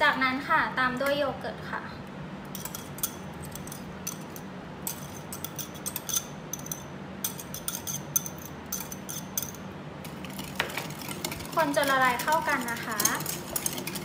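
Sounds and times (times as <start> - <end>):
spatula scraping glass jug: 10.1 - 14.0.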